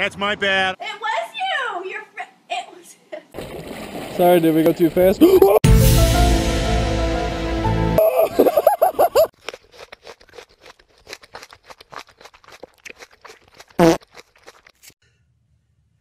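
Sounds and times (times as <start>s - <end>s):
groundhog crunching carrot: 9.3s - 15.0s.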